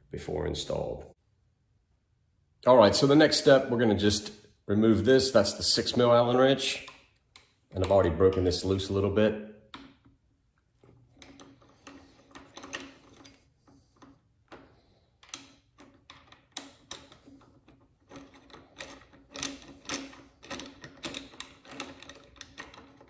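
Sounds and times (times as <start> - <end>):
wrench metallic clicks and scrapes: 10.8 - 23.0.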